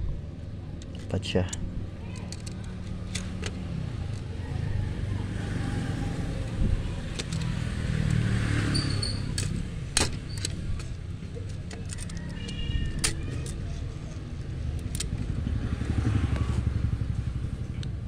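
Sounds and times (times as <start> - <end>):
low motor rumble: 0.0 - 18.0
clicks and taps of metal parts: 0.8 - 4.3, 7.0 - 8.2, 9.0 - 15.3.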